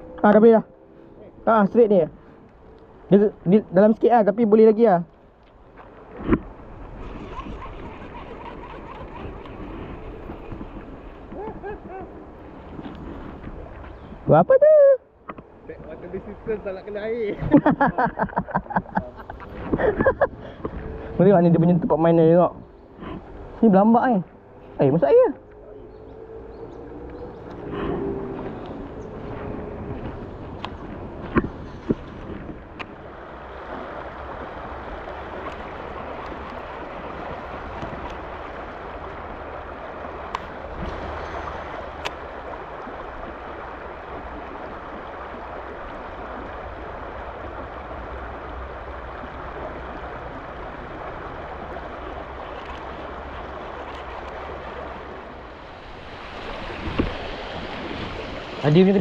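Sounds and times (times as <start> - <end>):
stream flowing: 0.0 - 59.0.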